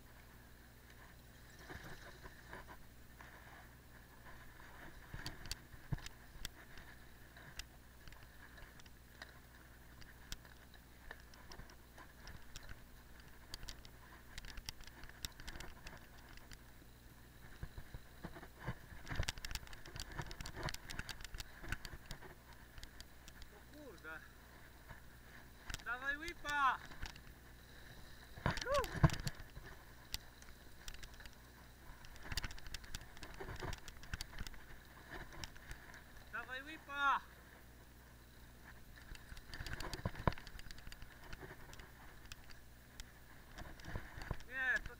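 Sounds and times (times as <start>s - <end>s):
bike clicks and rattles: 0.8s - 36.4s, 38.6s - 44.9s
bike parts rattling: 18.3s - 23.9s.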